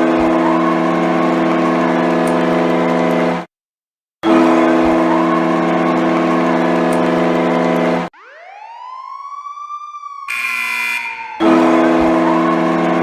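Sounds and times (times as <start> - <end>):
siren winding up: 0.0 - 3.5, 4.2 - 13.0
goal horn blaring chord: 4.2 - 8.1, 10.3 - 12.3.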